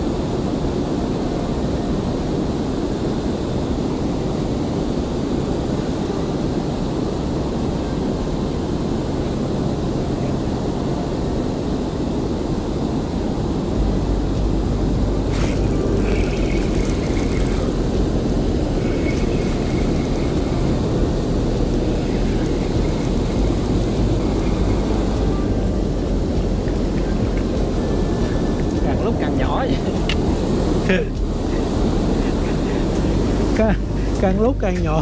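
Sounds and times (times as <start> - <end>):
wind: 0.0 - 35.0
water noise: 3.1 - 34.7
boat motor running: 13.8 - 35.0.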